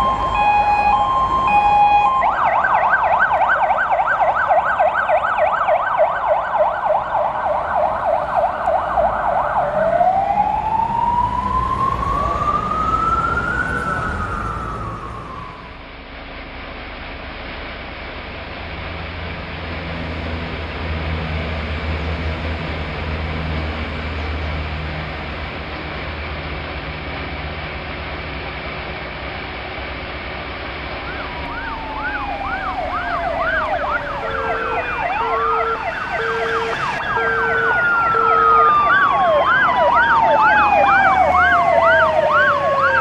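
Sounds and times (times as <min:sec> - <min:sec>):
emergency siren yelp and wail: 0:00.0 - 0:16.0, 0:30.8 - 0:43.0
low rumble with hiss: 0:15.0 - 0:22.8.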